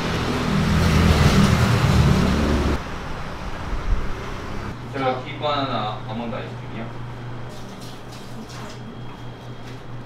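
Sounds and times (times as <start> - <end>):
vehicle engine rumbling: 0.0 - 4.8
road noise: 0.0 - 4.9
street background: 0.0 - 5.2.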